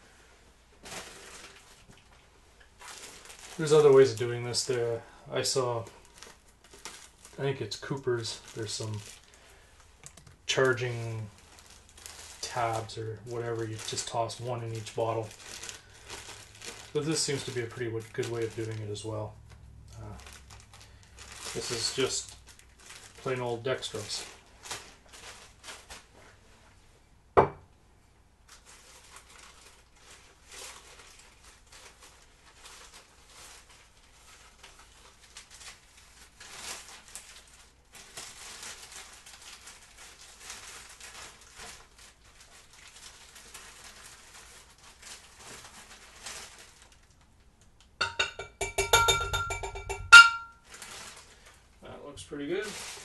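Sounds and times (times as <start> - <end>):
powder pouring rustle: 0.1 - 26.3, 38.8 - 47.2
plastic bag crinkling: 0.7 - 26.4, 28.4 - 47.7, 48.4 - 53.0.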